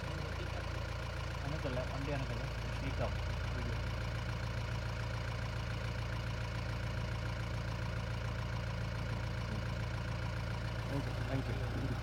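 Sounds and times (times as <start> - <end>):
jeep engine idling: 0.0 - 12.0.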